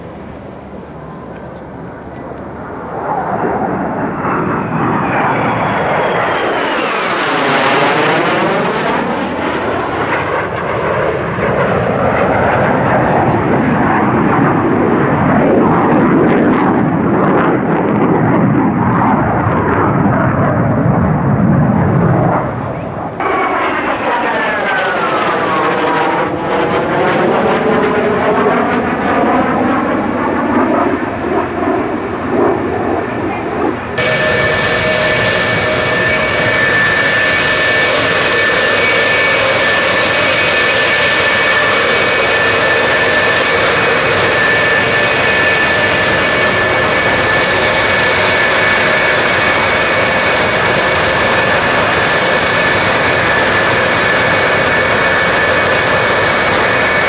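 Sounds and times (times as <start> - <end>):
jet passing overhead: 0.0 - 57.0
parked jet engines whining: 0.0 - 57.0.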